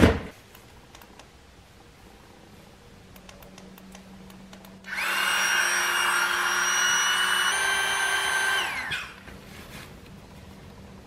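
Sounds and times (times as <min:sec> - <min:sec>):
electric air pump whining: 0:04.9 - 0:09.2.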